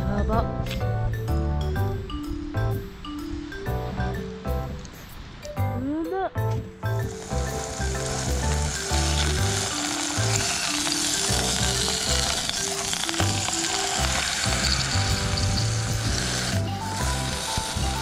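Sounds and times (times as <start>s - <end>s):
background music with bass line: 0.0s - 12.6s, 13.2s - 18.0s
meat searing in hot oil: 6.9s - 18.0s.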